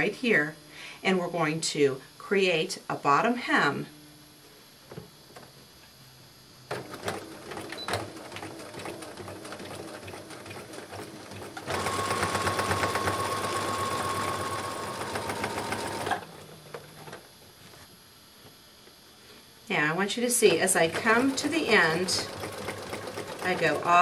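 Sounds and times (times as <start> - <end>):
sewing machine stitching: 6.7 - 16.5, 20.4 - 24.0.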